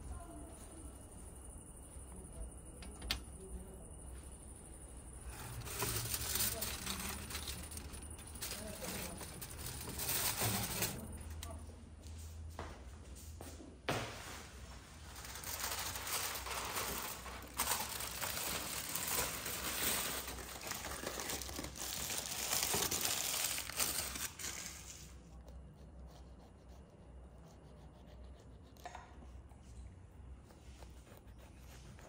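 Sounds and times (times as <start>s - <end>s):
aluminium foil crinkling: 5.5s - 11.4s, 15.1s - 25.2s.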